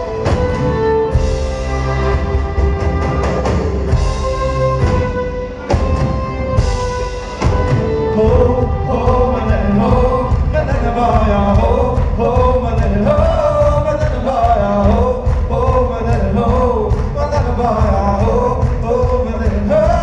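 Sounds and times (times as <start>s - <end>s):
fiddle: 0.0s - 11.5s
heavy drum hits: 0.0s - 20.0s
instrumental folk-rock band: 0.0s - 20.0s.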